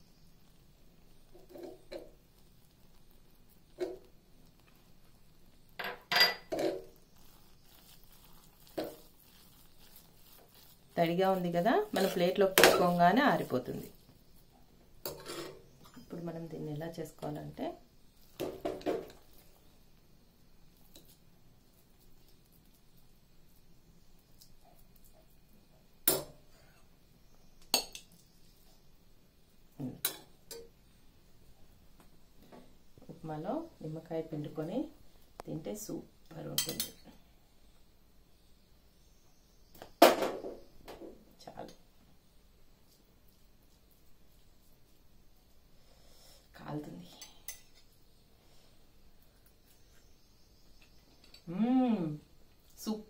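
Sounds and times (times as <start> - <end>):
cutlery clinking on dishes: 5.8 - 6.8, 36.6 - 37.0
metal spoon clinking on pot: 36.6 - 37.0.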